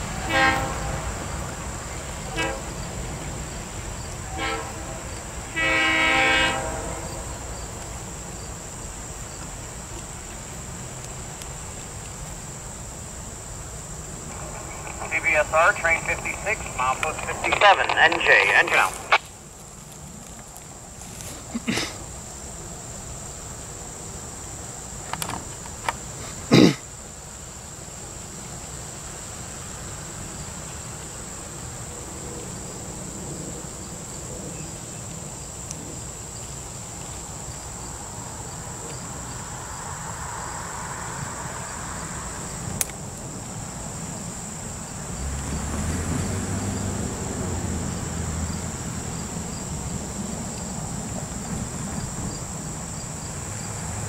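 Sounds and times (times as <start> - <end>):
diesel locomotive engine rumble: 0.0 - 21.3
crickets droning: 0.0 - 54.0.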